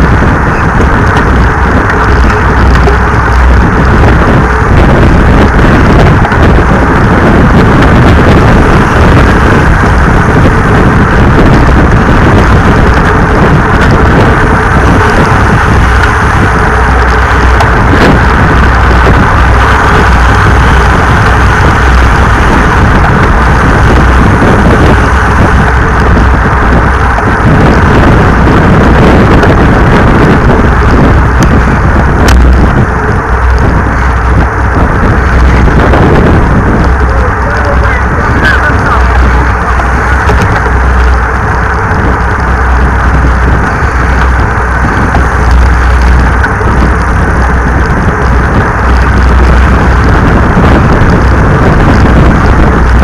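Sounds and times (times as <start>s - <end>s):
wind buffeting microphone: 0.0s - 53.0s.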